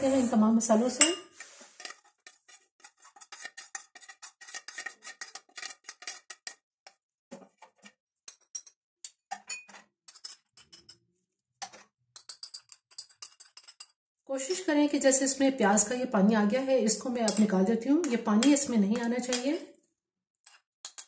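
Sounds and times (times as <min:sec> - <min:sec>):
metal spoon scraping ceramic bowls: 0:00.0 - 0:06.6, 0:08.3 - 0:11.0, 0:11.6 - 0:14.7, 0:17.2 - 0:19.6.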